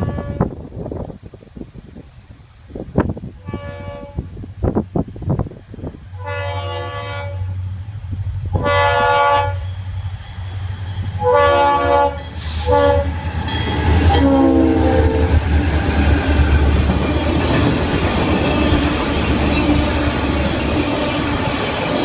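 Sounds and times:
locomotive air horn blasts: 0.0s - 0.5s, 3.4s - 4.3s, 6.1s - 7.7s, 8.5s - 9.7s, 11.2s - 13.1s, 14.0s - 15.4s
train wheels clacking on rail joints: 15.0s - 22.0s.

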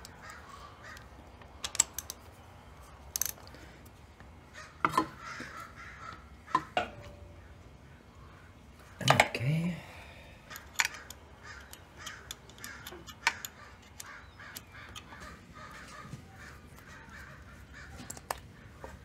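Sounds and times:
bird calling: 0.0s - 1.3s, 4.4s - 19.0s
sharp metal clicks: 0.0s - 3.6s, 10.4s - 15.4s.

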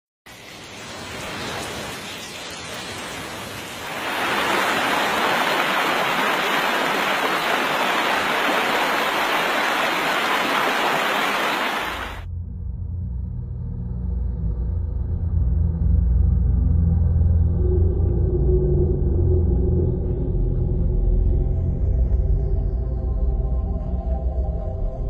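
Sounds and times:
rushing water: 0.3s - 12.3s.

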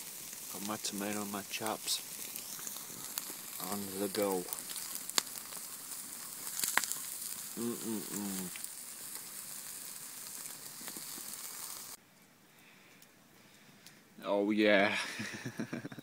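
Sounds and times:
meat sizzling on grill: 0.0s - 12.0s
campfire crackling and popping: 0.0s - 14.0s.

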